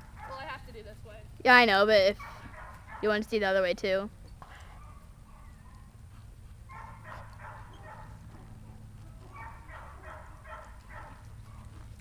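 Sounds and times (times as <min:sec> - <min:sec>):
dog barking: 0:00.2 - 0:00.5, 0:02.2 - 0:03.1, 0:04.8 - 0:05.9, 0:06.7 - 0:11.7.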